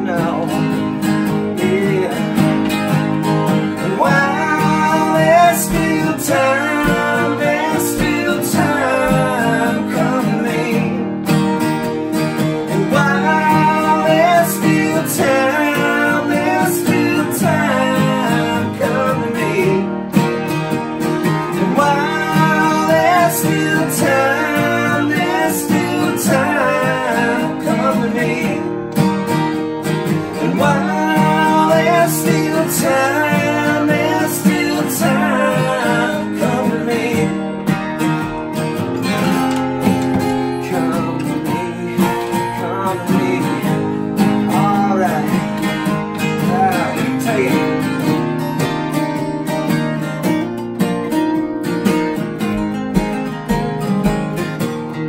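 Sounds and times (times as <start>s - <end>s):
men singing: 0.0s - 2.7s, 3.5s - 11.1s, 12.4s - 20.3s, 21.2s - 28.8s, 30.1s - 37.8s, 40.0s - 47.9s
acoustic guitars strumming: 0.0s - 55.0s.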